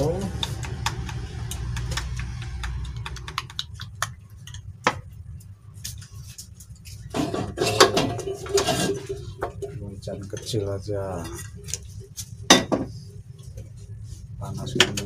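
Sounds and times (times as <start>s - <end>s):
chopsticks clicking against cup: 0.2s - 4.7s
cookware clattering: 7.1s - 9.8s.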